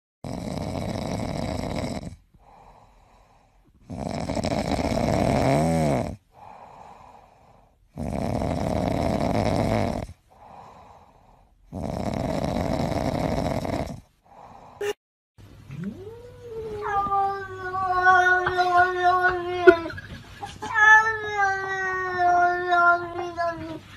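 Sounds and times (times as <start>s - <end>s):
cat snoring: 0.2s - 14.7s
cat breathing: 2.4s - 3.8s, 6.3s - 7.8s, 10.3s - 11.7s.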